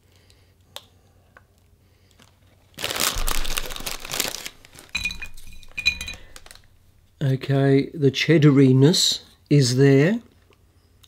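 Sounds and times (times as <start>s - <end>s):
foil bag crinkling: 2.1s - 6.8s.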